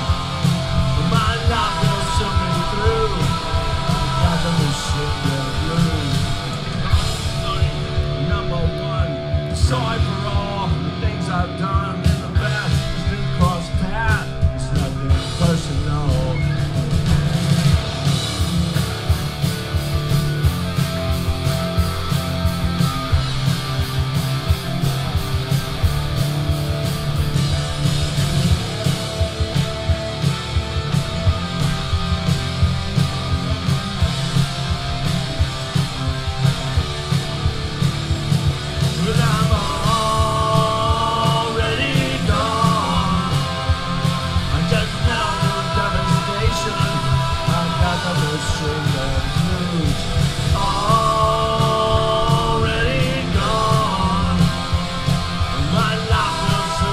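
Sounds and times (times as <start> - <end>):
person singing: 0.0 - 6.5, 39.0 - 56.9
drum hits: 0.0 - 56.9
live rock band playing: 0.0 - 56.9.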